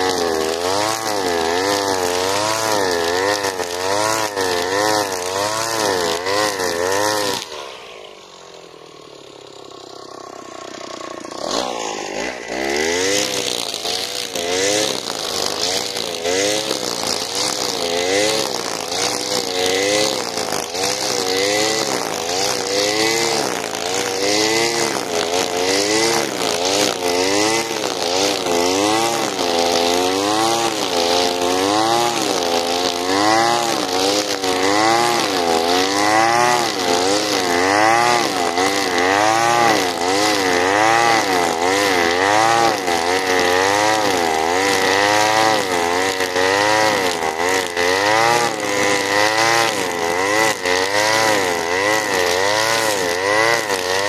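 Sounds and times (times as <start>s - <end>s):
brushcutter cutting grass: 0.0s - 54.0s.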